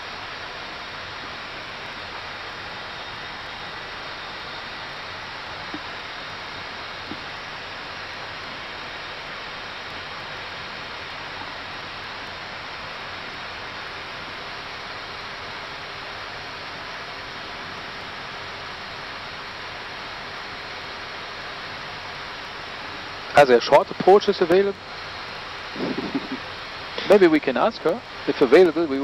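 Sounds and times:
aircraft cockpit air hiss: 25.7s - 29.0s.

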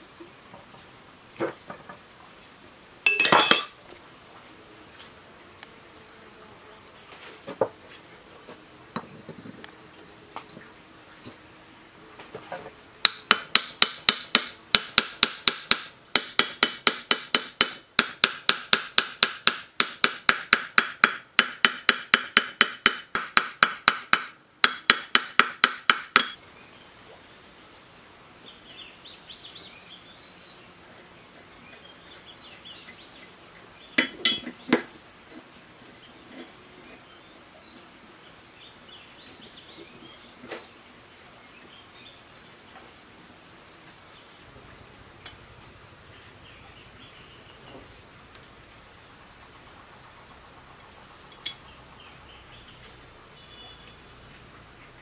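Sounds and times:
hammer striking metal: 3.1s - 3.8s, 13.1s - 26.4s
faint bird chirps: 49.9s - 54.4s.

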